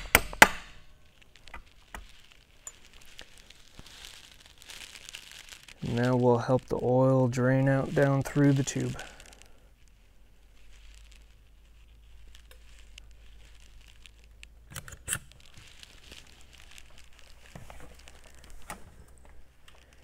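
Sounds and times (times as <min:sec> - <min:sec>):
hands rustling in engine bay: 0:09.8 - 0:20.0.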